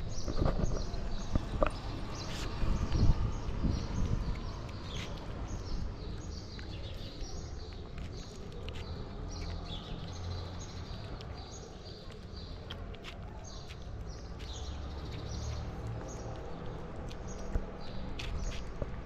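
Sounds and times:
cat chewing food: 6.1s - 19.0s.

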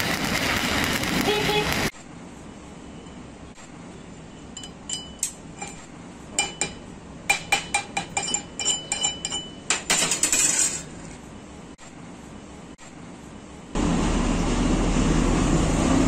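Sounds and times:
wire brush clinking on steel: 6.4s - 10.9s.

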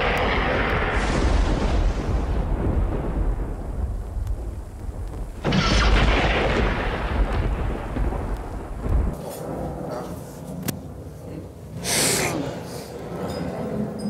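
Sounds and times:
rain: 0.0s - 9.2s
wind rumble on microphone: 0.0s - 11.2s.

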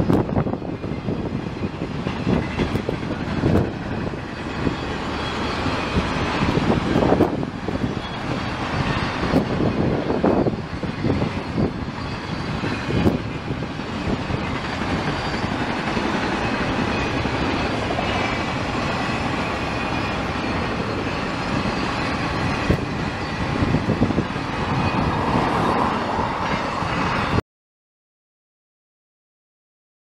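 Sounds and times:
freight train wheels on rails: 0.0s - 27.4s.

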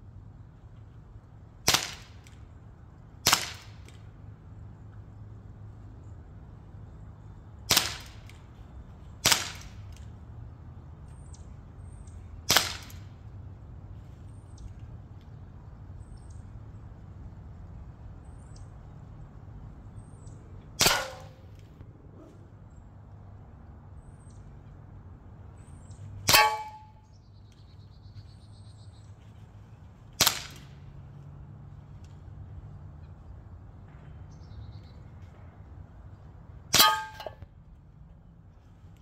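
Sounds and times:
bb pistol shots: 1.7s - 2.3s, 3.2s - 4.0s, 7.7s - 8.4s, 9.2s - 9.8s, 12.5s - 13.1s, 20.8s - 21.7s, 26.3s - 27.0s, 30.2s - 30.7s, 36.7s - 37.4s.

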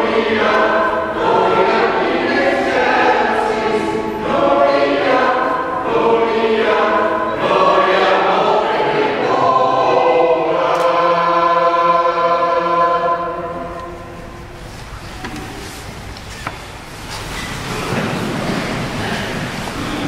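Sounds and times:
choir singing: 0.0s - 14.7s.

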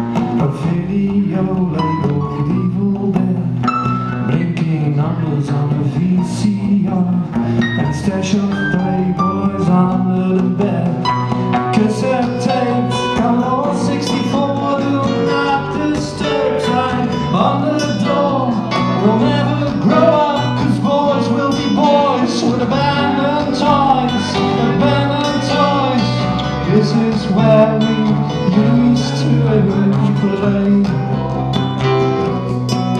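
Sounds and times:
man singing: 0.0s - 32.5s
drums: 0.0s - 32.9s
keyboard: 0.0s - 32.9s
second guitar: 0.0s - 32.9s
strummed acoustic guitar: 0.0s - 32.9s.

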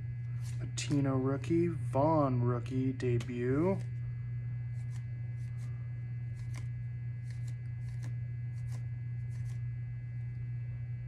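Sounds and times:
steady low hum: 0.0s - 11.0s
cards sliding off a stack: 6.3s - 9.6s.

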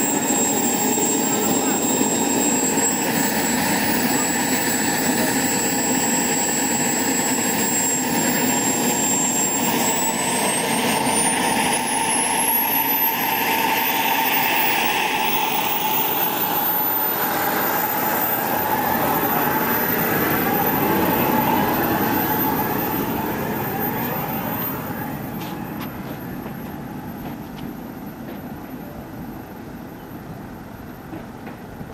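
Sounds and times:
jet turbine whine: 0.0s - 31.9s.

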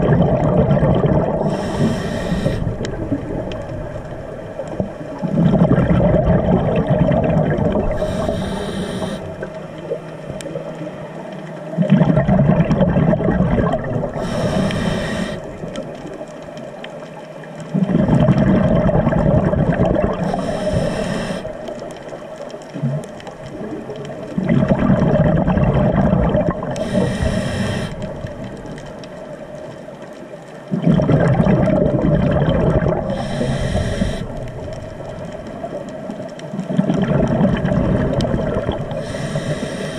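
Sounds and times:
exhaled bubbles gushing underwater: 0.0s - 29.8s, 30.6s - 39.9s
regulator inhalation hiss: 1.4s - 2.9s, 7.9s - 9.5s, 14.2s - 15.6s, 20.2s - 21.7s, 26.8s - 28.1s, 33.1s - 34.5s, 38.9s - 39.9s.

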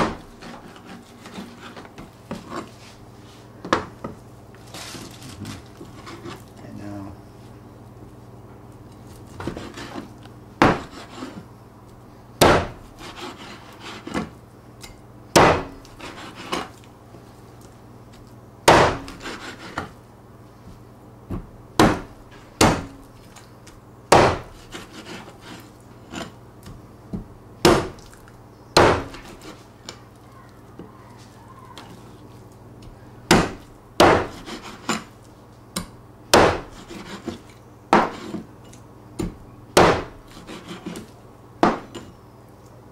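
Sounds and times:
cleaver chopping chicken on board: 10.6s - 11.0s, 12.4s - 12.8s, 15.4s - 15.8s, 18.7s - 19.4s, 24.1s - 24.5s, 33.3s - 34.6s, 35.8s - 36.8s, 39.2s - 40.2s.

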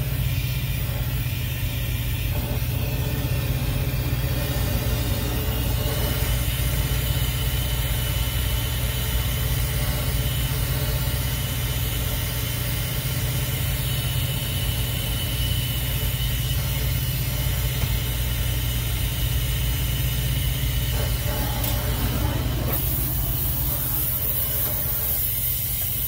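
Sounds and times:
gas torch burning: 0.0s - 26.0s.

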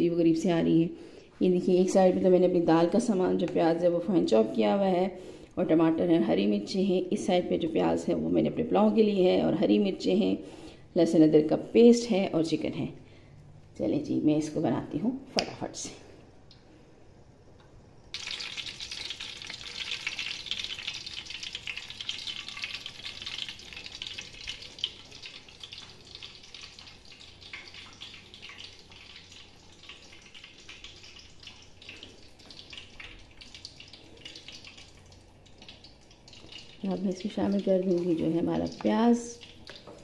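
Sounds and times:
hot oil crackling and sizzling: 18.1s - 40.0s.

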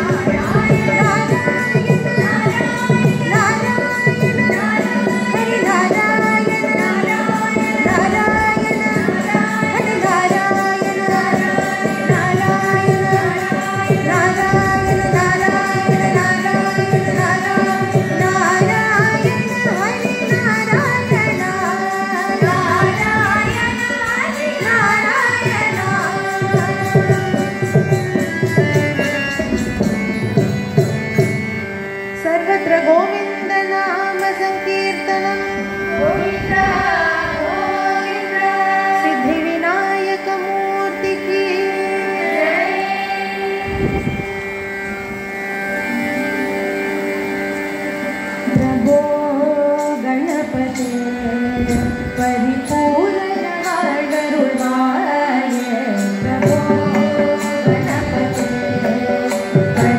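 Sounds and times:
hand drum strokes: 0.0s - 31.8s
steady drone: 0.0s - 32.2s, 35.2s - 39.4s, 40.3s - 49.0s
devotional song singing: 0.0s - 59.9s.

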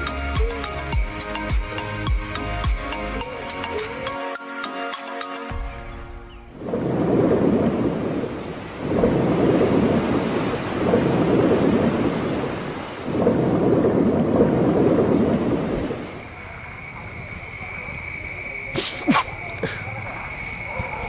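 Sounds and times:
high ringing tone: 0.4s - 4.2s, 15.8s - 21.0s.

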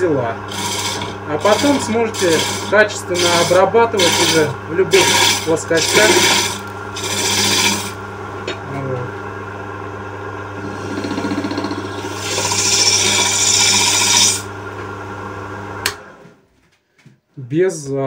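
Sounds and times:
lathe motor hum: 0.0s - 16.2s
hook tool scraping wood: 0.5s - 4.4s.

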